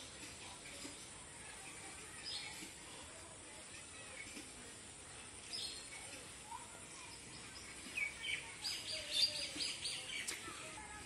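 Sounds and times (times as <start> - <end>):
birds chirping: 5.4 - 6.2, 6.9 - 10.8.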